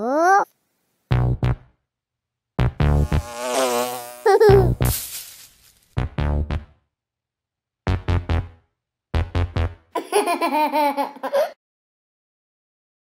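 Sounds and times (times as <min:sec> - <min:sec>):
cartoon character giggling: 0:04.2 - 0:04.8, 0:10.0 - 0:11.6.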